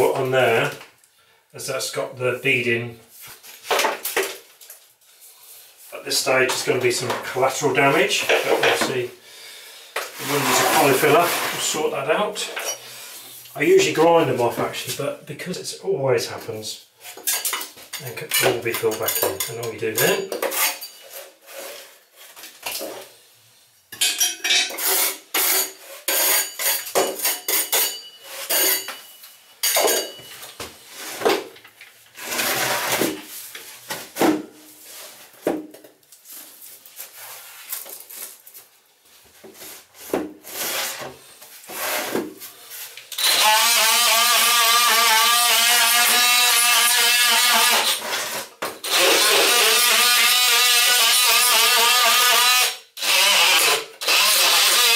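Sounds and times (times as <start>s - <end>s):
power tool cutting with whine: 43.2s - 48.0s.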